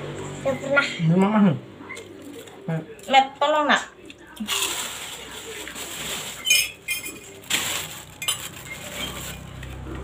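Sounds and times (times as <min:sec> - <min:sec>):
plates and cutlery clinking: 0:05.6 - 0:09.8.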